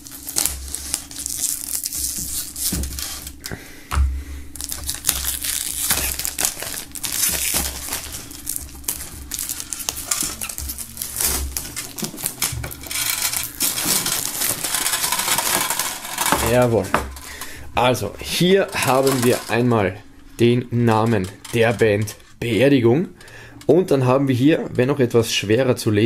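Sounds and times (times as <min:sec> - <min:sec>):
knife slitting plastic film: 0:00.0 - 0:03.4, 0:04.6 - 0:16.7
plastic film crinkling: 0:00.0 - 0:03.5, 0:04.6 - 0:19.9, 0:20.6 - 0:22.4.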